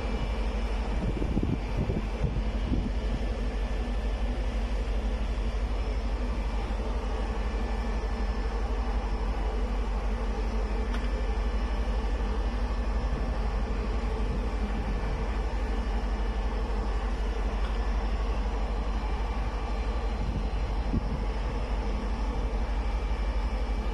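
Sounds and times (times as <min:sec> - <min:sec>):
ship machinery hum: 0:00.0 - 0:23.9
strong wind blowing: 0:00.8 - 0:03.3, 0:20.1 - 0:21.6.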